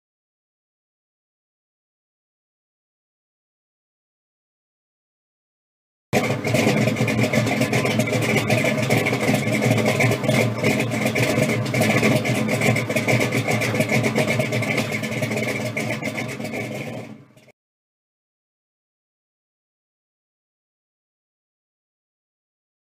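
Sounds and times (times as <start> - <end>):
loud engine running: 6.2 - 17.5.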